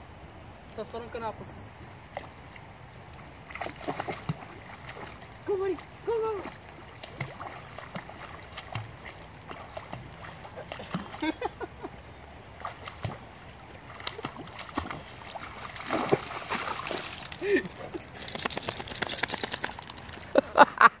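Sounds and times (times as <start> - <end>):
dog splashing through water: 3.4 - 11.4, 12.6 - 20.4.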